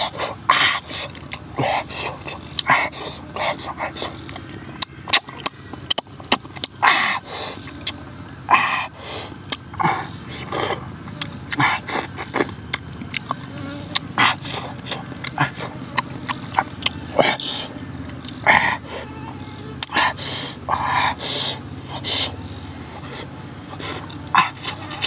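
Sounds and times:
insects droning: 0:00.0 - 0:25.0
mouth smacks and chewing: 0:00.9 - 0:06.8, 0:07.6 - 0:08.1, 0:09.3 - 0:18.4.

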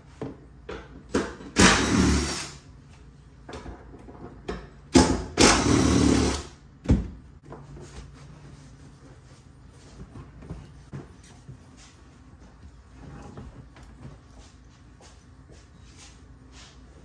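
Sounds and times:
power tool undoing bolts: 0:01.5 - 0:02.6, 0:05.0 - 0:06.5.

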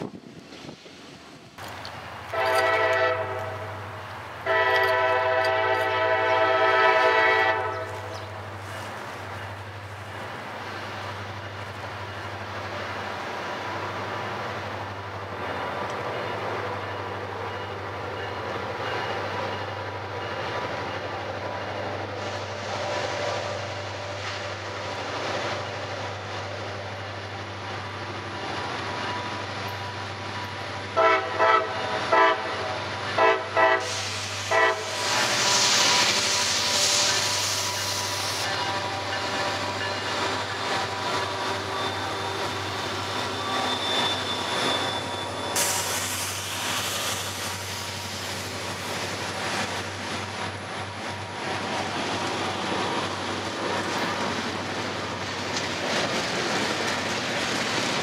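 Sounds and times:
low rumble of locomotive: 0:00.0 - 0:58.0
locomotive air horn blasts: 0:02.3 - 0:03.8, 0:04.4 - 0:08.0, 0:31.0 - 0:35.0.

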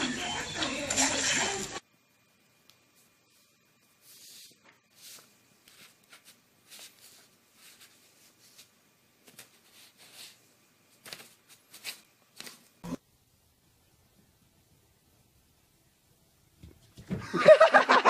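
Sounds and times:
paper rustling: 0:04.0 - 0:12.8.

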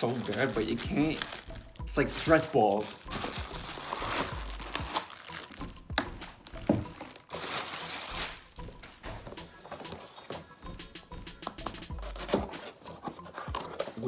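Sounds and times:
bubble wrap crinkling: 0:00.0 - 0:08.7.

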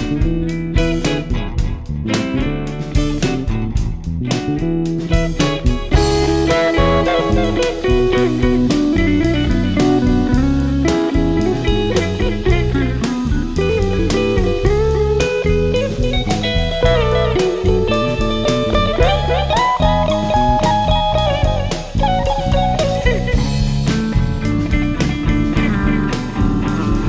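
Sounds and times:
drum kit beat: 0:00.0 - 0:27.0
electric guitar sliding lines: 0:04.6 - 0:27.0.

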